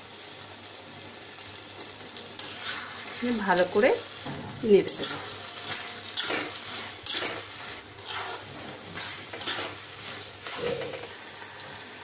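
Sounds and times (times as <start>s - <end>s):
curry frying hiss: 0.0s - 12.0s
spoon scraping through curry: 2.4s - 3.2s, 4.9s - 11.2s.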